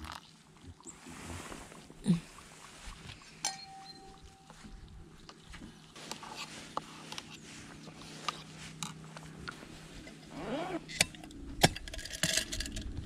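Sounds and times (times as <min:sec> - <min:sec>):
metal cookware clinking: 0:03.5 - 0:04.4.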